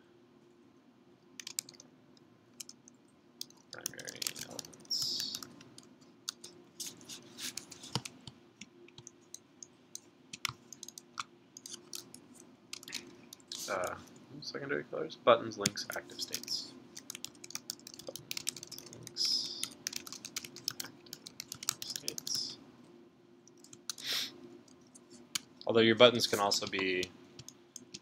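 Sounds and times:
faint steady hum: 0.0s - 28.0s
computer keyboard typing: 1.4s - 1.8s, 2.6s - 8.3s, 10.3s - 14.0s, 16.2s - 22.5s, 23.5s - 24.0s.

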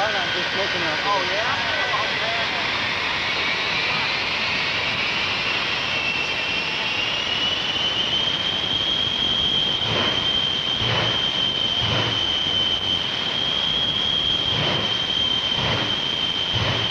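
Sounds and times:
jet engine whine: 0.0s - 16.9s
deep bursts: 9.6s - 16.9s
loud rushing noise: 9.7s - 16.9s.

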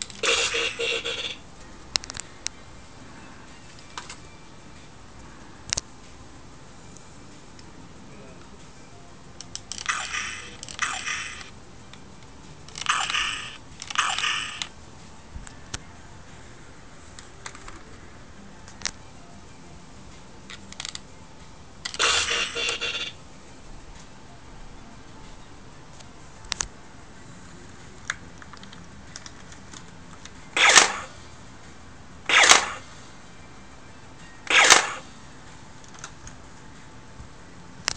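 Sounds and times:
lo-fi electronic gunshot sound: 32.3s - 32.8s, 34.5s - 35.0s.

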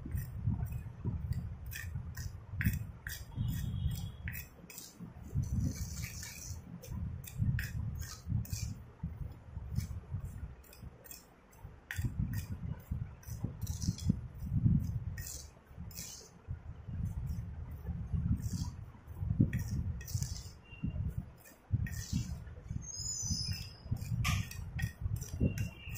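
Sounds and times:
spoon clinking and scraping bowl: 1.7s - 6.6s, 19.5s - 20.6s, 21.4s - 25.9s.

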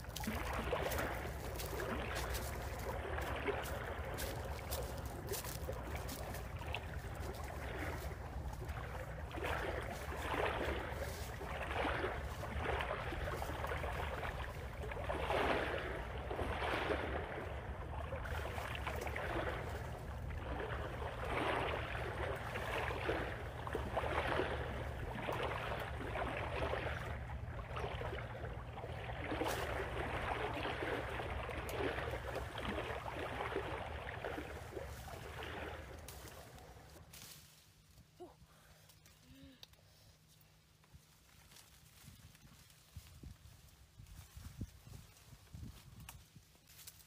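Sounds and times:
tree branches rustling: 0.0s - 15.7s, 34.2s - 47.0s.

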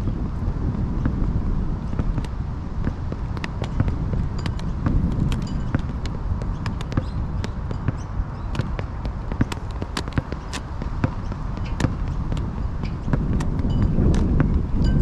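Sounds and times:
roller skates rolling: 0.0s - 15.0s
wind rumble on microphone: 0.0s - 15.0s
skate wheels clicking and knocking: 0.7s - 15.0s.

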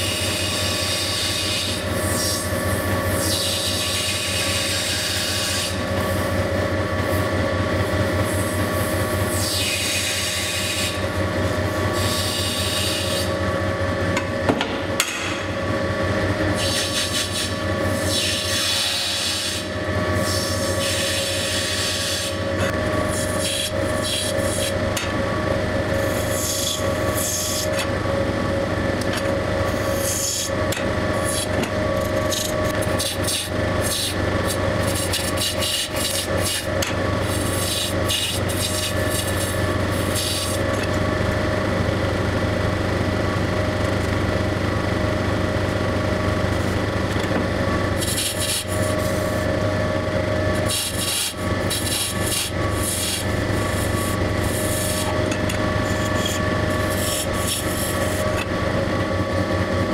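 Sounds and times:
wheel motor hum: 0.0s - 59.9s
metal tool scraping plaster: 31.2s - 40.6s, 48.0s - 49.3s, 50.6s - 58.5s.

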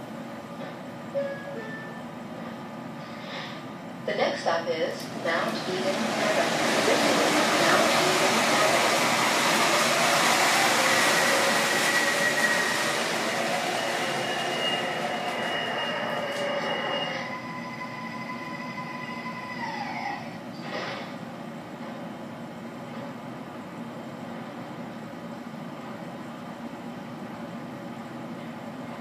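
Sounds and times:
model train rolling on track: 5.0s - 17.0s.

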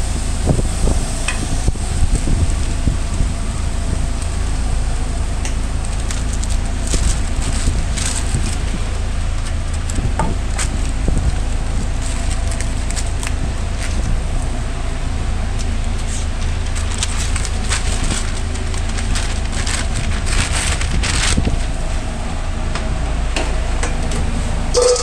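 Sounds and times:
low machinery rumble: 0.0s - 25.0s
paper bag crinkling: 5.7s - 8.9s, 10.5s - 14.1s, 16.0s - 22.0s.

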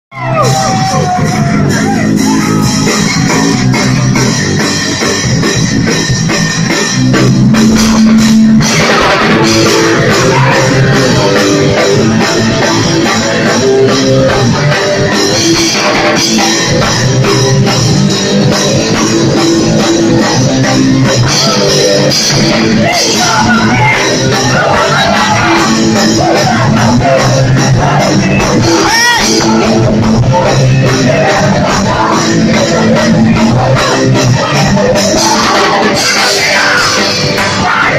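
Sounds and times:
live rock band playing: 0.1s - 37.9s
vocals: 8.0s - 37.9s.

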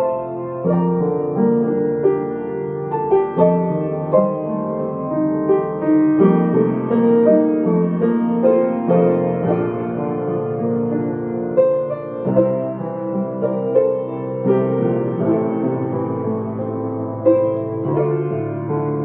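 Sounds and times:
slow gentle piano music: 0.0s - 19.0s.

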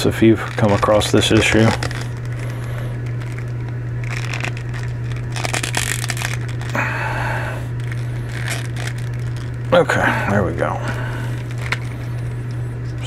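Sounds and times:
steady low hum: 0.0s - 13.0s
plastic and fabric scraping: 0.2s - 6.8s.

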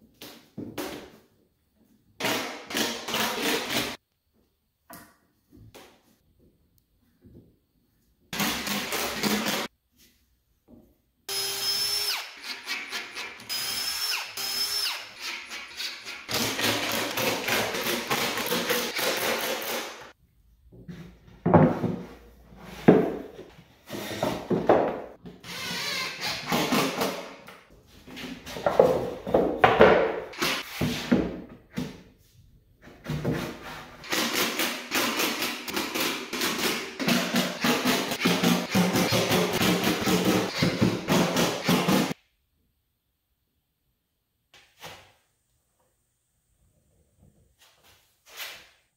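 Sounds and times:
impact driver whirring and hammering: 34.1s - 42.2s.

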